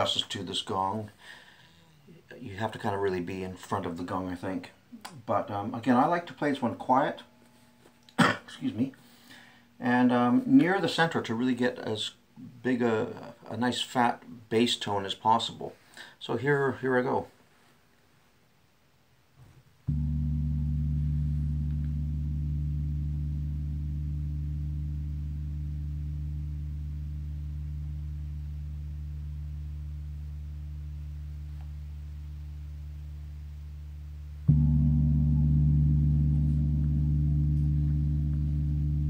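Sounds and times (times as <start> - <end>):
gong struck with mallet: 19.9 - 25.0, 34.5 - 39.0.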